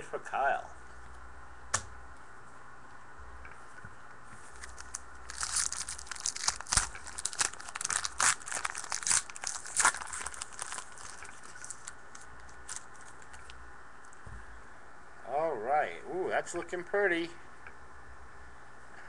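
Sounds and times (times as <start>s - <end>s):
wrapper rustling: 4.4s - 13.6s
foil wrapper tearing and crinkling: 4.5s - 13.6s.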